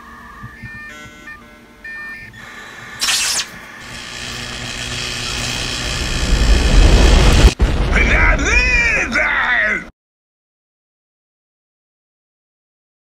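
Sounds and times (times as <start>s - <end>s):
rushing noise: 4.4s - 9.0s.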